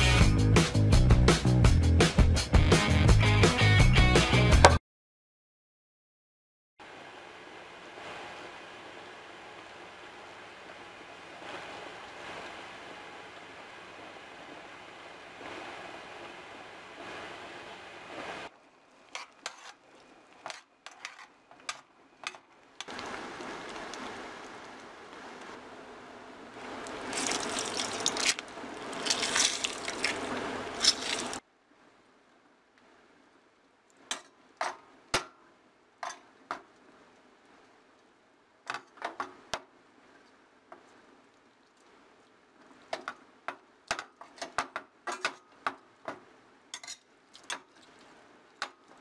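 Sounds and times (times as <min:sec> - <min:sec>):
beans simmering with popping bubbles: 0:18.4 - 0:25.6, 0:26.5 - 0:31.4, 0:36.0 - 0:49.0.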